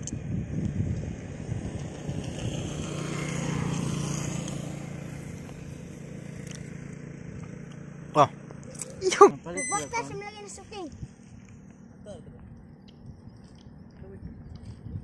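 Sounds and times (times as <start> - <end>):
wind buffeting the microphone: 0.0 - 4.4, 10.0 - 11.4, 12.0 - 15.0
motorcycle engine running: 0.0 - 15.0.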